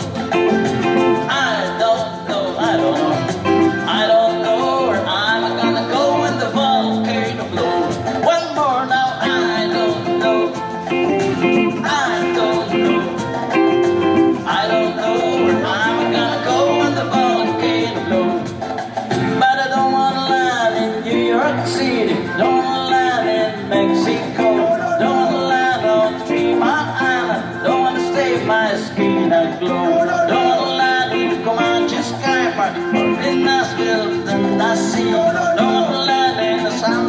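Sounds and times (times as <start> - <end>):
electric guitar: 0.0 - 37.0
man singing: 0.0 - 37.0.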